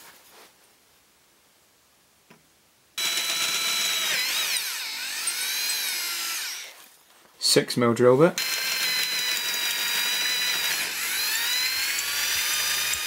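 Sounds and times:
electric drill whining: 3.0s - 6.9s, 8.4s - 13.0s.

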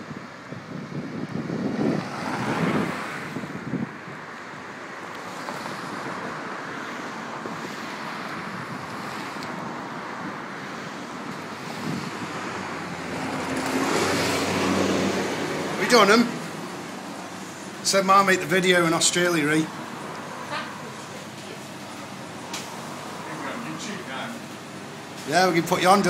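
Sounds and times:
wind buffeting microphone: 0.0s - 4.8s, 7.2s - 15.8s
street traffic: 0.0s - 26.0s.

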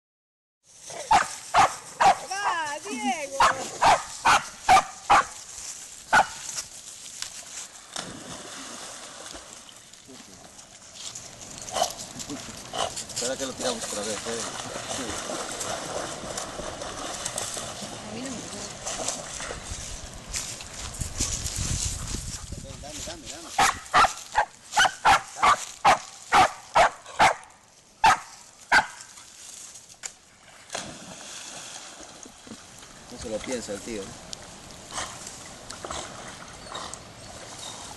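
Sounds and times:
dog barking: 1.0s - 2.3s, 3.4s - 5.4s, 6.1s - 6.4s, 23.6s - 29.0s
water sloshing: 2.3s - 21.2s
dog splashing into water: 7.8s - 9.9s, 13.9s - 19.7s, 30.6s - 32.6s.

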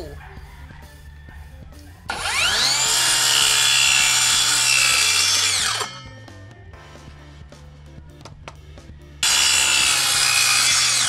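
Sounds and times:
circular saw cutting plywood: 2.1s - 6.1s, 9.2s - 11.0s.

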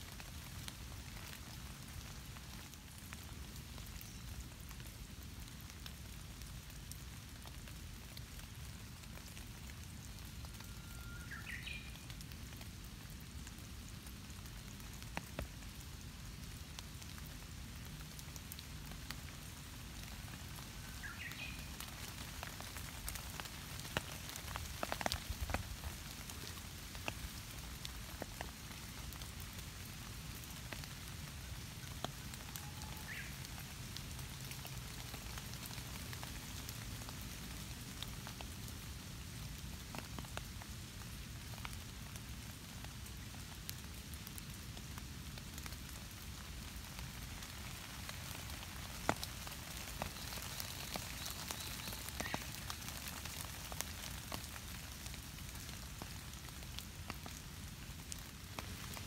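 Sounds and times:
rain pattering on leaves: 0.0s - 59.0s.

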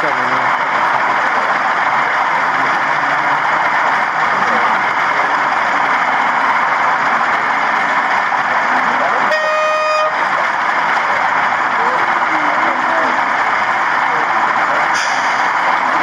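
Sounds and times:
crowd chatter: 0.0s - 16.0s
model locomotive horn blast: 9.3s - 10.2s.

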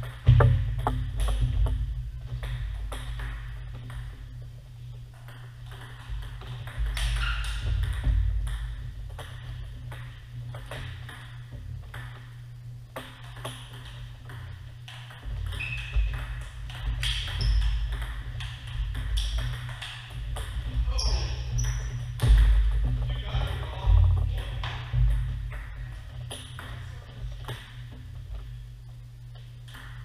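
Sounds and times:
steady low hum: 0.0s - 30.0s
short squeaks: 7.2s - 7.6s, 15.6s - 16.1s.

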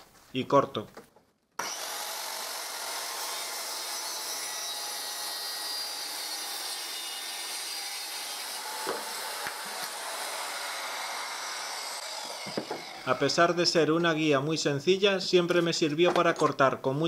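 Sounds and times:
circular saw cutting wood: 1.6s - 13.8s.

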